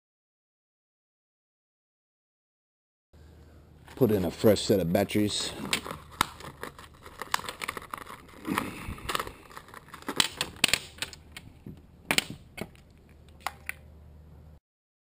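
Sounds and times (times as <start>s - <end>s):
plastic clicks and clatter: 5.6s - 13.9s.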